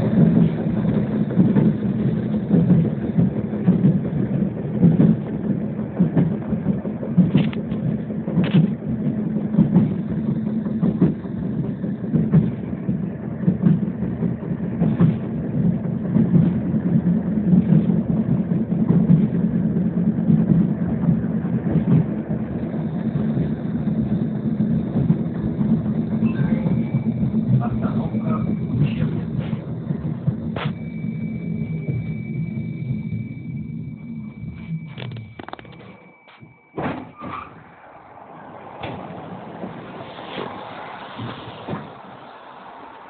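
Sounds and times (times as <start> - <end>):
rattles and clicks: 0.0 - 32.3
tram rumbling: 0.0 - 43.0.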